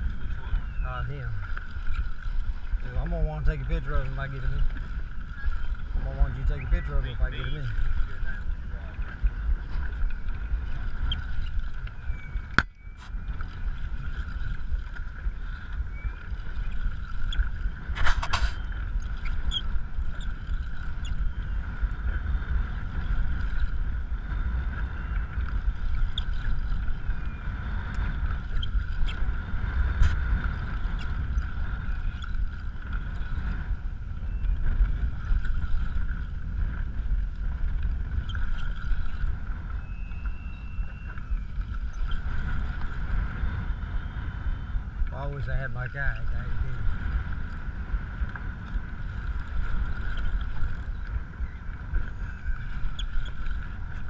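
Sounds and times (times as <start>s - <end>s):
wind rumbling on microphone: 0.0s - 54.0s.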